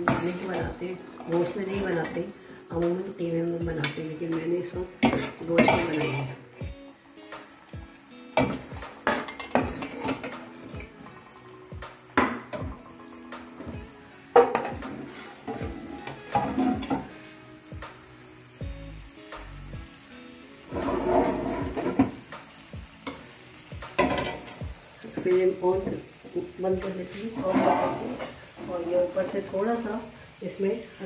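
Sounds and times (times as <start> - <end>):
low sizzle: 0.0 - 31.0
metal spoon scraping a pot: 20.7 - 22.0, 27.3 - 28.4.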